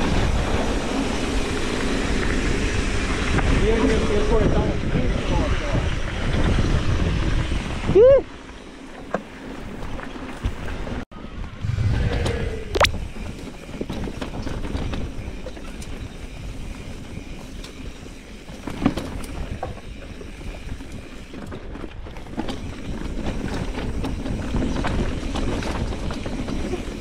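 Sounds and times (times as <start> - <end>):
bike rattling: 0.0 - 11.0, 12.9 - 27.0
tyres rumbling on rocky trail: 0.0 - 11.0, 13.0 - 27.0
wind on microphone: 11.3 - 15.5.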